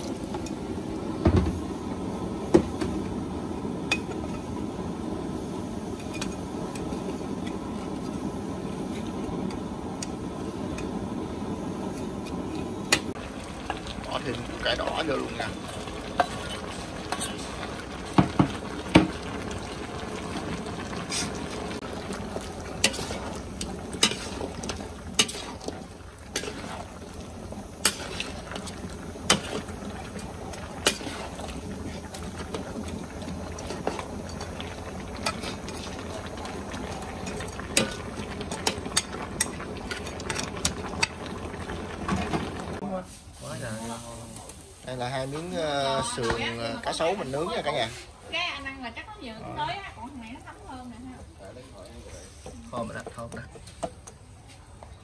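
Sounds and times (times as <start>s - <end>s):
stew simmering and bubbling: 0.0s - 55.0s
ladle scraping metal pot: 22.7s - 27.1s, 27.8s - 32.7s.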